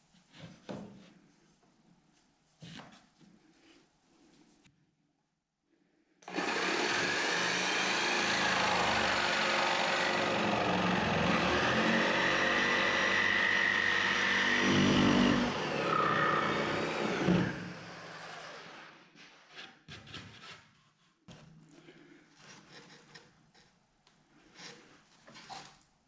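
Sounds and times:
jigsaw cutting wood: 0:06.2 - 0:18.9.

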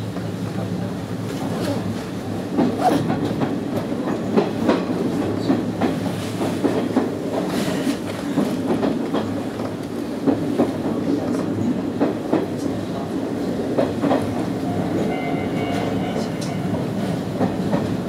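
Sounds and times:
low train running hum: 0:00.0 - 0:18.0
train wheels clacking over rail joints: 0:02.5 - 0:12.8, 0:13.7 - 0:15.1, 0:15.7 - 0:18.0.

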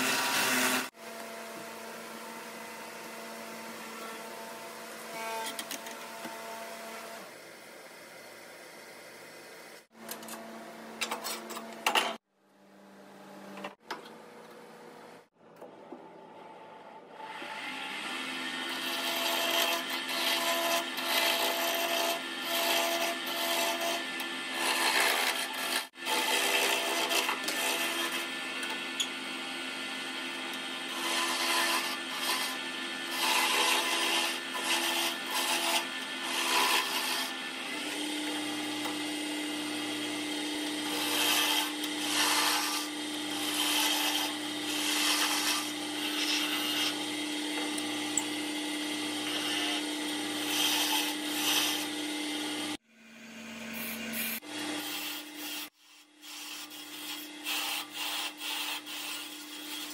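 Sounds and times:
wood lathe humming: 0:00.0 - 0:01.6, 0:17.1 - 0:59.9
gouge scraping wood: 0:30.9 - 0:37.4, 0:40.8 - 0:47.0, 0:50.4 - 0:51.9, 0:54.8 - 0:59.9.

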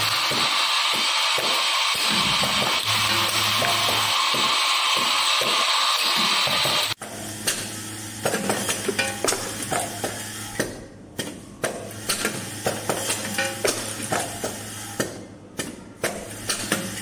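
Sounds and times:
vibratory bowl feeder humming: 0:00.0 - 0:10.6.

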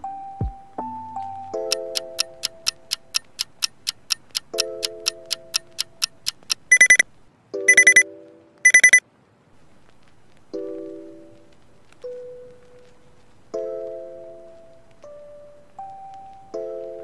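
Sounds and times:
soft music chords: 0:00.0 - 0:07.0, 0:10.5 - 0:17.0
clock ticking: 0:01.5 - 0:07.1, 0:07.7 - 0:08.0, 0:08.6 - 0:09.0
alarm clock beeping: 0:01.7 - 0:07.0, 0:07.7 - 0:08.0, 0:08.6 - 0:09.0.

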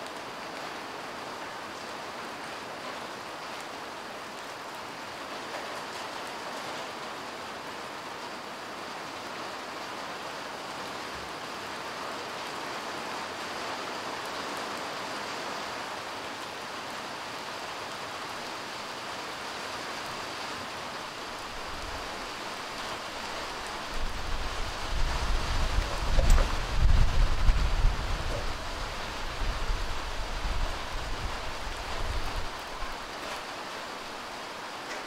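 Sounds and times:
light rain falling on cars: 0:00.0 - 0:35.0
wind buffeting microphone: 0:23.4 - 0:32.9.

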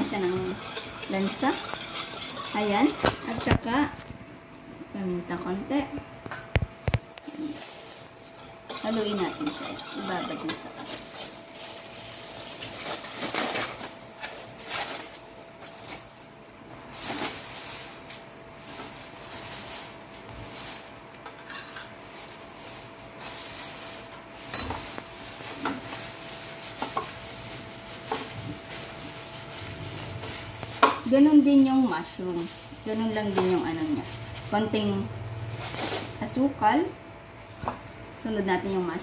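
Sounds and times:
wet rustling of meat mixing: 0:21.9 - 0:36.5.

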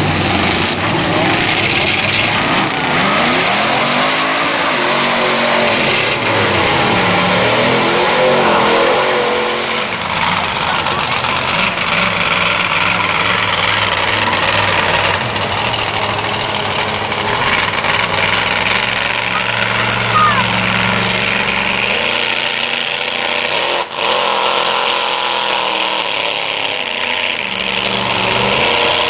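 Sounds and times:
tires spinning through mud: 0:00.0 - 0:29.0
truck engine revving: 0:00.0 - 0:29.0.

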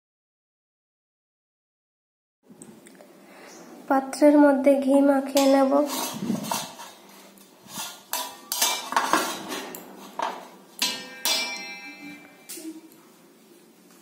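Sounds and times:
brass plate knocks and clinks: 0:10.8 - 0:12.5.

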